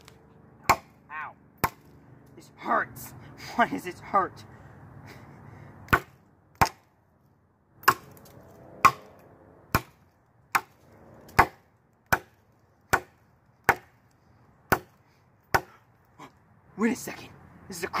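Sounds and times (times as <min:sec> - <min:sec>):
machete chopping wood: 0:00.6 - 0:01.0, 0:01.6 - 0:01.9, 0:05.9 - 0:06.9, 0:07.8 - 0:14.1, 0:14.7 - 0:15.8.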